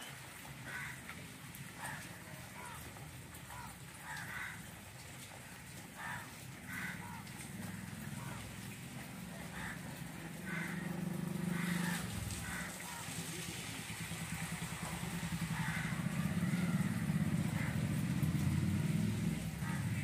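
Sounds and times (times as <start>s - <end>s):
engine rumbling: 6.7s - 20.0s.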